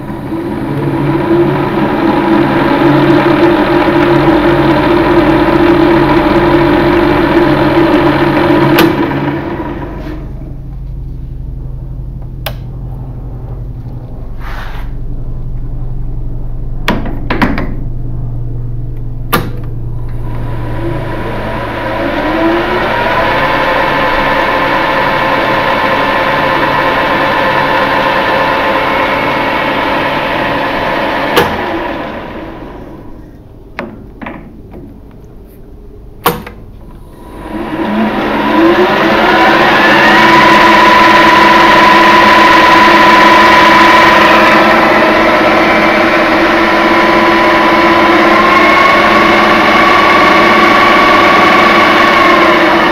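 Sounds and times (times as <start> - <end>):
metal lathe spindle whine: 0.0 - 10.3, 20.0 - 33.2, 37.0 - 52.9.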